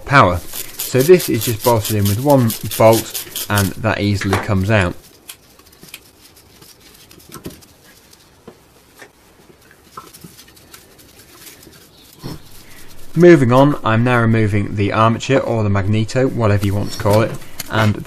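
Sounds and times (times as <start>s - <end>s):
soft rush: 4.6s - 18.0s
faint clicks and rustles: 5.0s - 13.2s.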